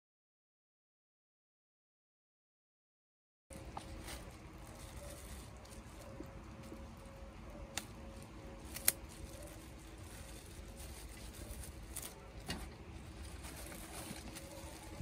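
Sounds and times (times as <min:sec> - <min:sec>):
bag rustling and crackling: 0:03.5 - 0:15.0.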